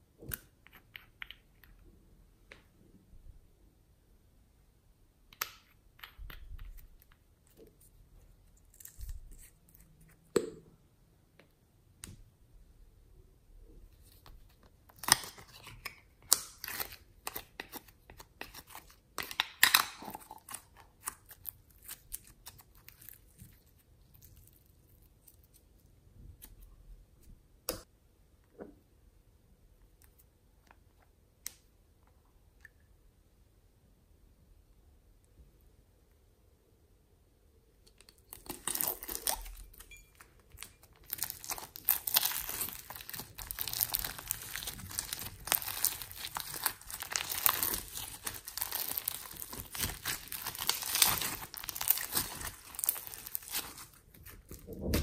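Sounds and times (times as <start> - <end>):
slime crackling and popping: 38.3 - 39.8, 40.5 - 55.0.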